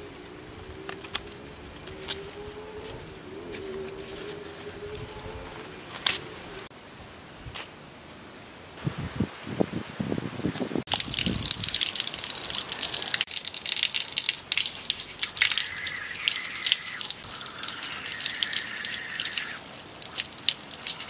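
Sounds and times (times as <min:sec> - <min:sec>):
water running from a tap: 0:10.9 - 0:21.0
water splashing on a leaf: 0:10.9 - 0:21.0.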